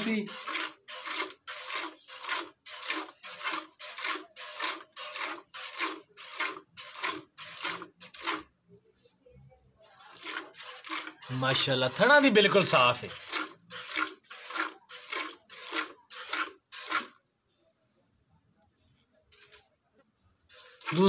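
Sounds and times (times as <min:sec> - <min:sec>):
milk squirting into metal bucket: 0:00.0 - 0:08.8, 0:09.9 - 0:17.2, 0:20.5 - 0:21.0.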